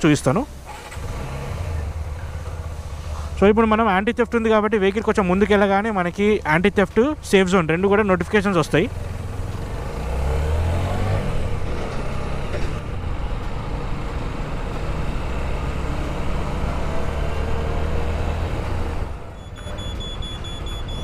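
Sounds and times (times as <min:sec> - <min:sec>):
wind and road noise: 0:00.0 - 0:21.0.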